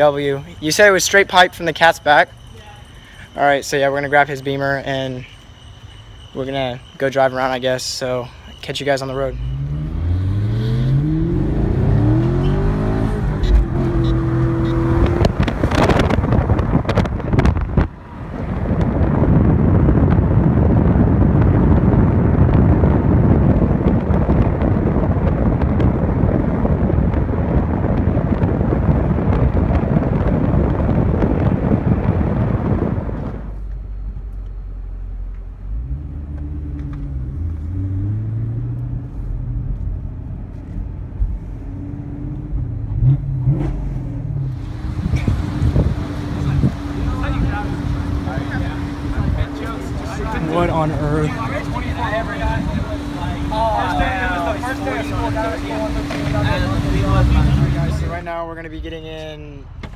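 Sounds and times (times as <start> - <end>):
wind and road noise: 0.0 - 59.9
car engine accelerating: 9.2 - 33.5, 35.1 - 58.4.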